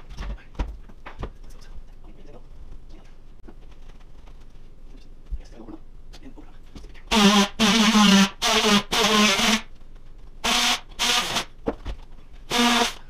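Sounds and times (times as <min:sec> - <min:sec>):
power tool buzzing bursts: 0:07.1 - 0:09.7, 0:10.4 - 0:11.5, 0:12.5 - 0:13.0.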